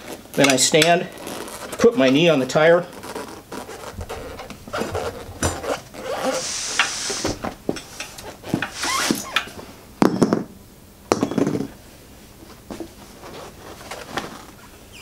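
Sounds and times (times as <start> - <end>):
tire squeaking against wheel rim: 0.0 - 9.6, 13.3 - 15.0
handling noises: 0.0 - 10.4, 11.1 - 14.8.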